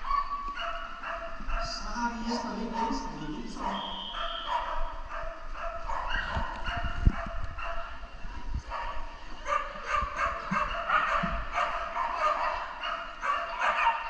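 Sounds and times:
dogs barking and yipping: 0.0s - 14.0s.

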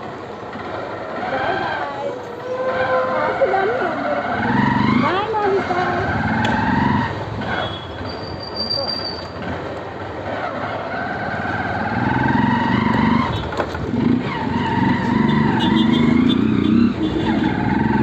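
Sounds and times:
road and wind noise: 0.0s - 18.0s
high-pitched squeal: 6.0s - 9.5s.

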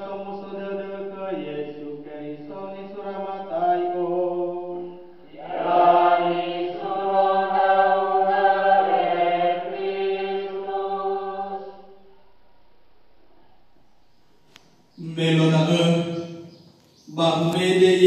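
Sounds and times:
priest chanting into microphone: 15.0s - 16.5s, 17.1s - 18.0s.

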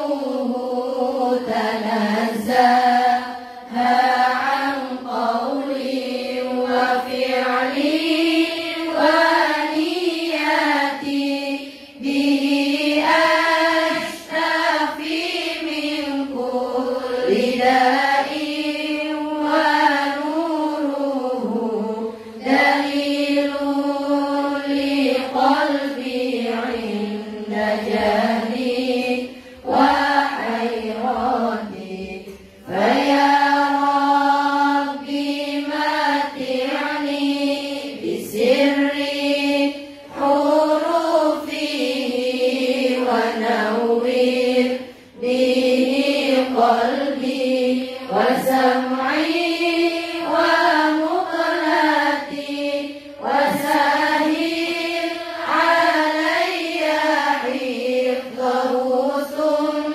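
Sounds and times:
women chanting in unison: 0.0s - 59.9s.

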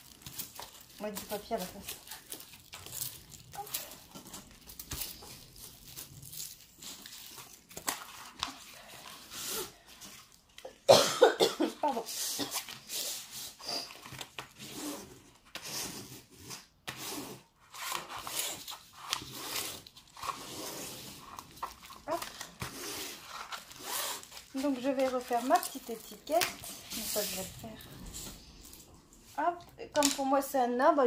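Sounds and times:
paper and plastic film rustling: 0.0s - 10.8s, 17.5s - 30.5s
cough-like vocal burst: 10.9s - 12.6s.

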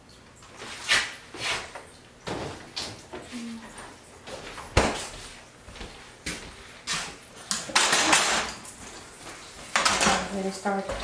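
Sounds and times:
saucepan scraping and clatter: 6.9s - 9.0s.

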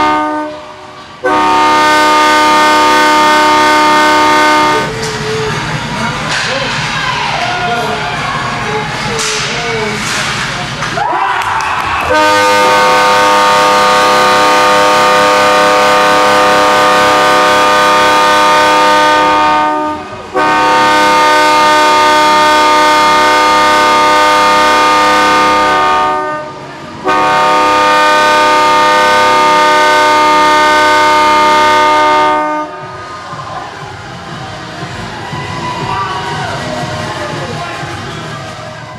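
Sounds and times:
goal horn blasts: 0.0s - 0.6s, 1.2s - 4.9s, 12.1s - 32.7s.

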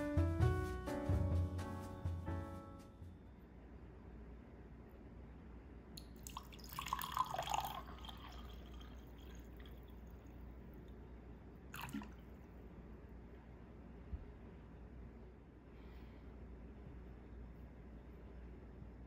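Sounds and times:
tea pouring into a glass: 6.0s - 10.4s, 11.8s - 12.3s.

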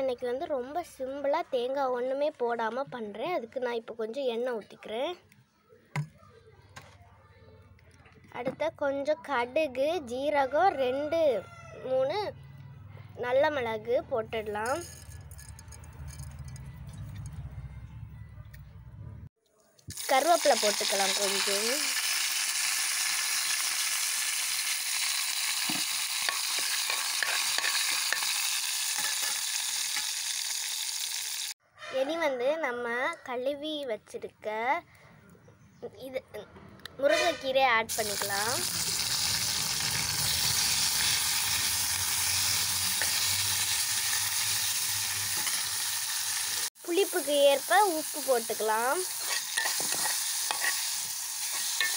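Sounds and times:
leaves sizzling in hot oil: 19.9s - 31.6s, 37.9s - 51.9s
spatula clicking in pan: 26.2s - 30.1s.

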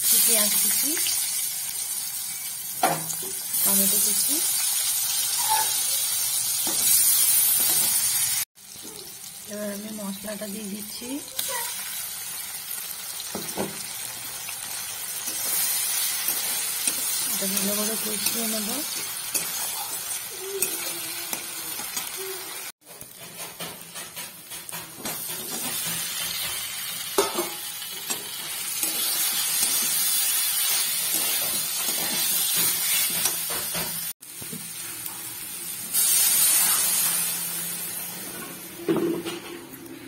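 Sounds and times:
food sizzling in hot oil: 0.0s - 40.0s
metal spatula scraping pan: 15.2s - 22.2s, 22.9s - 33.9s.

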